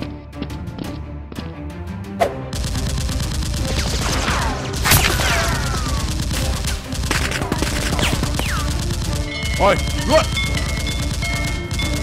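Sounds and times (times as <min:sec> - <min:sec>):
background music: 0:00.0 - 0:12.0
rapid gunfire sound effects: 0:02.5 - 0:12.0.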